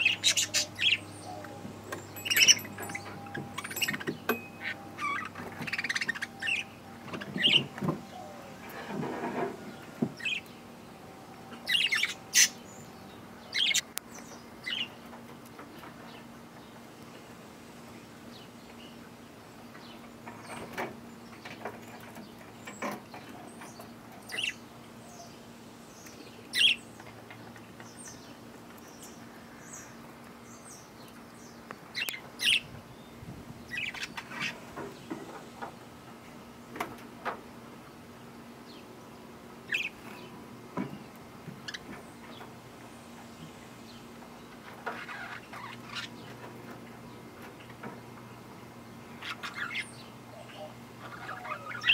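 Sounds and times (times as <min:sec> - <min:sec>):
budgerigars chirping: 0:00.0 - 0:08.4, 0:11.6 - 0:12.8, 0:13.5 - 0:13.9, 0:26.5 - 0:26.8, 0:32.0 - 0:32.7, 0:39.7 - 0:40.0, 0:49.2 - 0:51.9.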